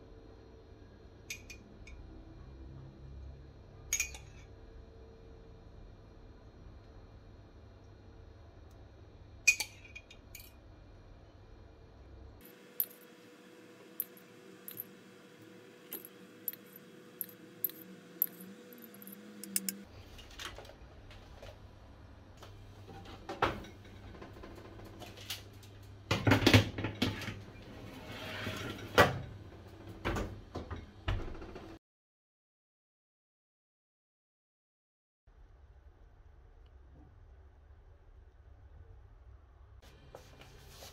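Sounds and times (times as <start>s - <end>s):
pastry brush clinking metal cup: 13.9s - 15.1s, 15.9s - 19.8s.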